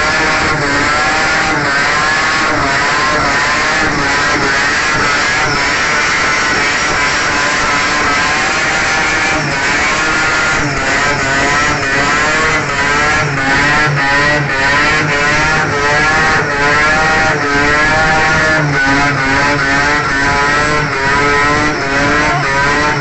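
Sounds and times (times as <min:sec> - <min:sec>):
rotary engine revving hard: 0:00.0 - 0:23.0.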